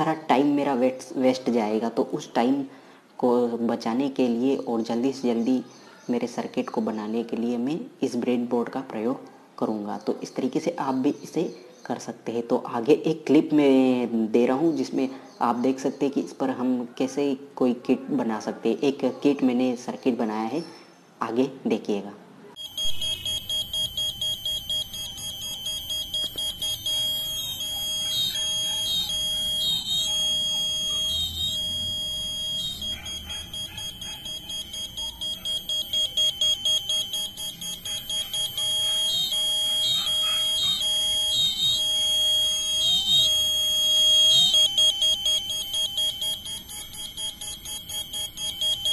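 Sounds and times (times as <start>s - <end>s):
pulsing high-pitched alarm tone: 22.6s - 48.9s
warbling electronic tune: 22.6s - 48.9s.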